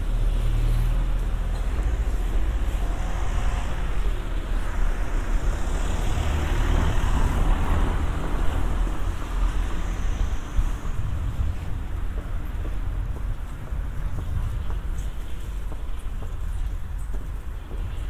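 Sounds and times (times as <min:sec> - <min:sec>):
car passing: 0:00.0 - 0:14.0
low traffic rumble: 0:00.0 - 0:18.0.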